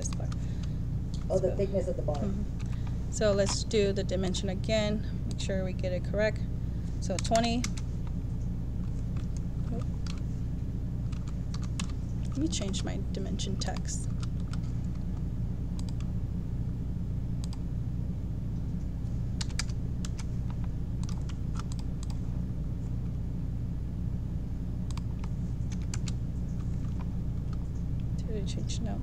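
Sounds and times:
steady low hum: 0.0s - 29.0s
keyboard keys clicking: 11.1s - 12.8s, 19.4s - 22.2s, 24.9s - 27.6s.

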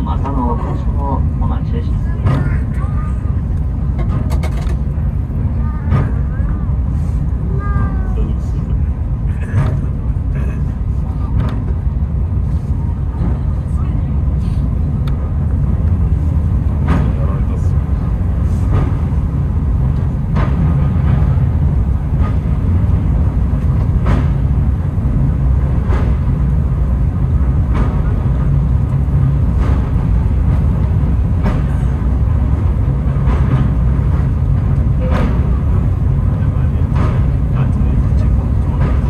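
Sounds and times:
cable car low rumble: 0.0s - 39.0s.

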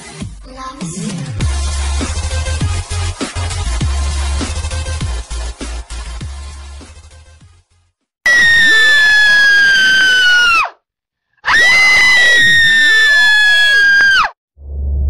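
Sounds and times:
shrill ghost screams: 8.3s - 10.7s, 11.4s - 14.4s
low rumble: 14.6s - 15.0s.

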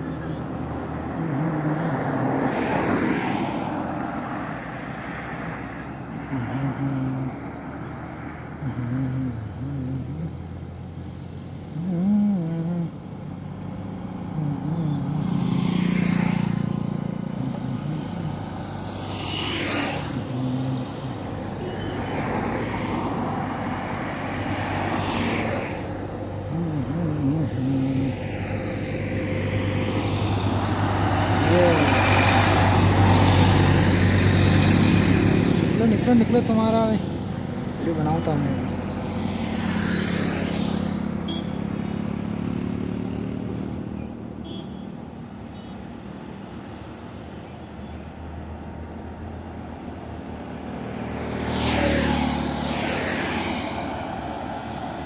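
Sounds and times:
heavy vehicle engine drone: 0.0s - 55.0s
highway traffic passing: 0.0s - 55.0s.

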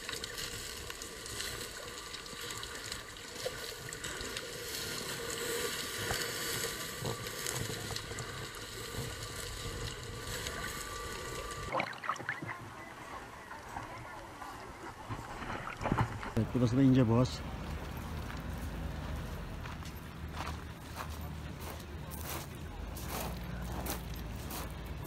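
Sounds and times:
underwater hiss and crackling: 0.0s - 12.8s
water splash: 11.7s - 12.6s.

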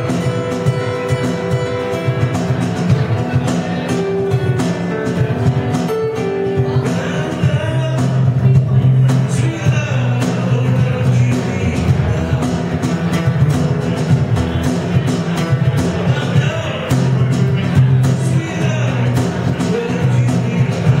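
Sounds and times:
cajon beat: 0.0s - 21.0s
strummed acoustic guitar: 0.0s - 21.0s
man singing into a microphone: 6.1s - 21.0s.

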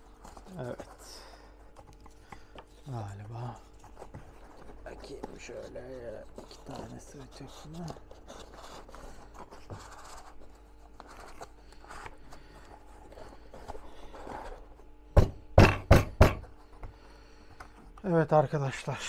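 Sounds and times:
cardboard scraping and rustling: 3.2s - 14.7s
sharp knocks: 15.2s - 16.5s.

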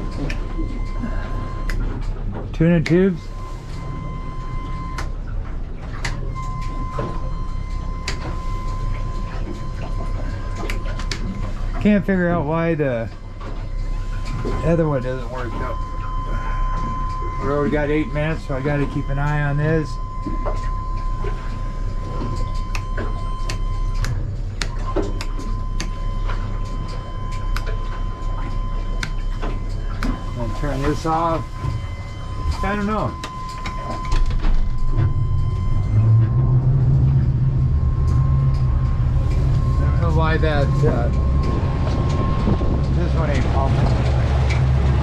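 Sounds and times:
outboard engine low rumble: 0.0s - 45.0s
thin steady whine: 0.0s - 45.0s
sharp clicks and knocks: 18.1s - 30.3s
high-pitched tone: 24.9s - 44.3s.

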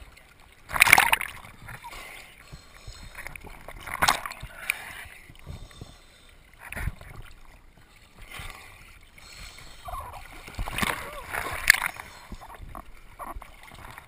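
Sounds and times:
water sloshing and splashing: 0.0s - 14.0s.

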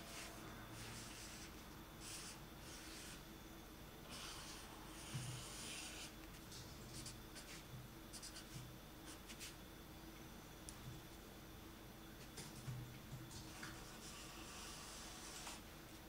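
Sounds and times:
pen scratching on paper: 4.1s - 6.1s.

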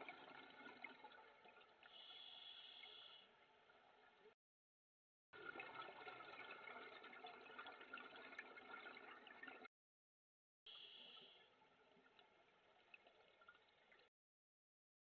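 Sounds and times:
underwater hiss with crackling: 1.9s - 3.2s.

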